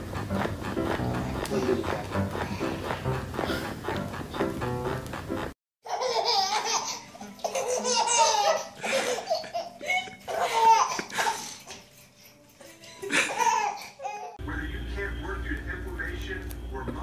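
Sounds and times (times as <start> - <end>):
background music: 0.0 - 13.7
baby laughing: 5.8 - 11.8, 13.0 - 14.4.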